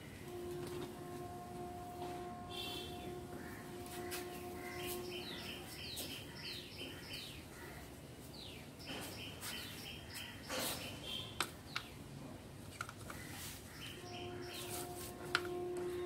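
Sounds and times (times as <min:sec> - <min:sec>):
small birds chirping: 0:04.6 - 0:12.0.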